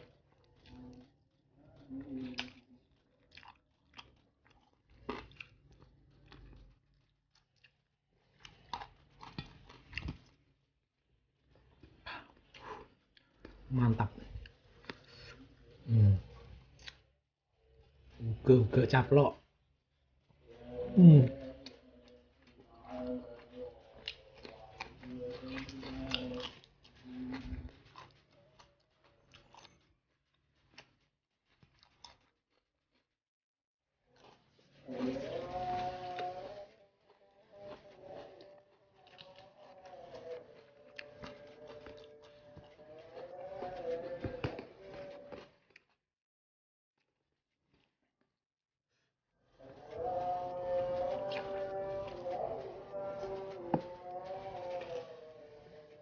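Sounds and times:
person chewing food: 0.0 - 17.2, 19.8 - 33.2, 34.1 - 46.1, 47.0 - 48.3, 49.6 - 56.0
man humming mm: 15.8 - 16.4, 20.7 - 21.8.

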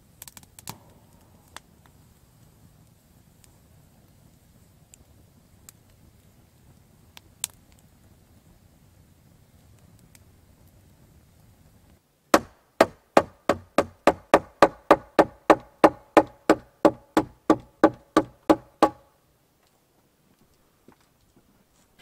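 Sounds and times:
campfire crackle: 0.0 - 22.0
hatchet hammering on wooden beam: 12.4 - 19.0.

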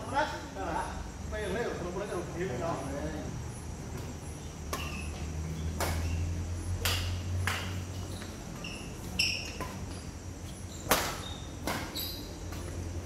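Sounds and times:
steady low hum: 0.0 - 13.0
rackets hitting shuttlecock: 3.9 - 12.9.

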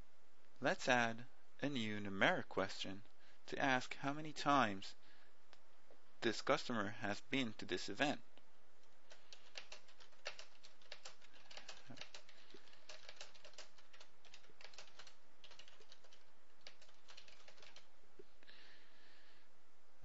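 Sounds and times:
computer keyboard typing: 9.1 - 17.9.

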